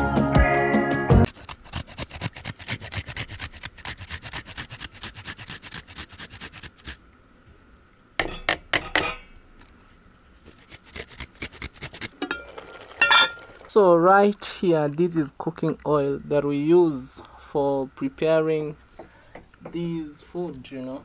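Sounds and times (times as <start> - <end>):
food scraping on metal grater: 1.3 - 7.0, 10.5 - 12.3.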